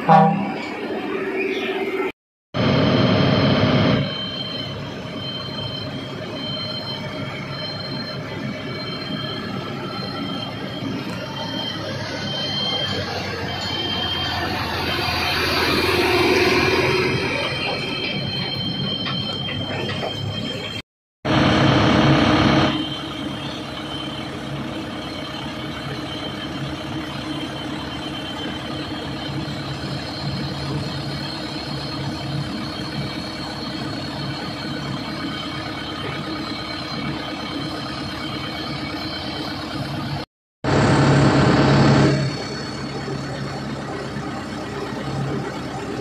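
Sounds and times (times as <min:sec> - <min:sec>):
truck engine running: 0:02.6 - 0:46.0.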